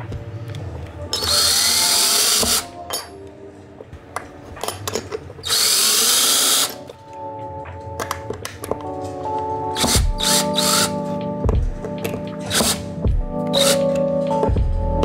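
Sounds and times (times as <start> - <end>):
cordless drill driving screws: 1.2 - 2.7, 5.4 - 6.8, 9.8 - 11.0, 12.4 - 12.8, 13.5 - 13.9.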